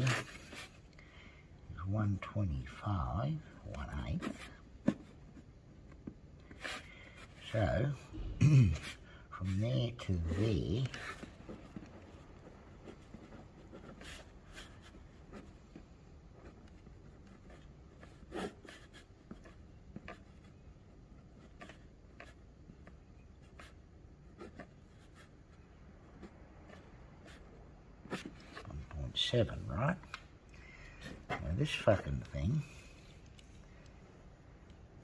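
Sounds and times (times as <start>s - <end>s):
pen scratching on paper: 3.8s - 7.8s, 8.8s - 29.5s.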